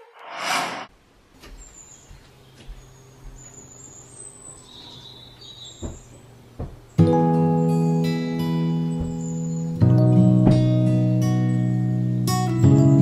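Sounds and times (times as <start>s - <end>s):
short whoosh: 0.0s - 0.9s.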